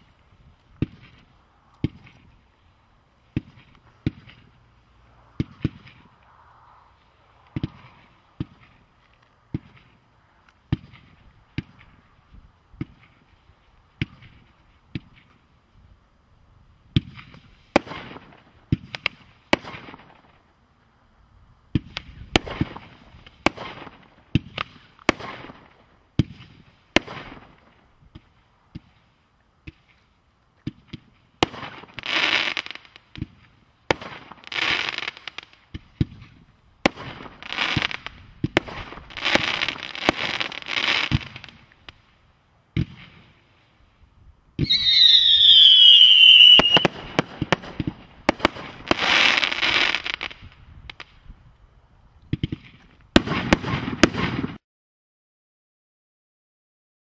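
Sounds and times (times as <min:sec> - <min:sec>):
firework launch thumps: 0:01.8 - 0:02.4, 0:05.3 - 0:06.2, 0:07.4 - 0:08.8.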